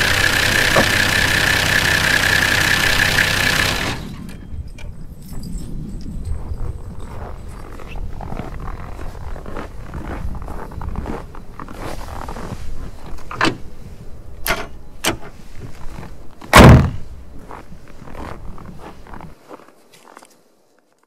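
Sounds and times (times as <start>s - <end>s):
diesel engine idling: 0.0s - 4.3s
engine knocks: 0.0s - 4.4s
car bonnet slamming shut: 0.7s - 1.0s, 16.5s - 17.0s.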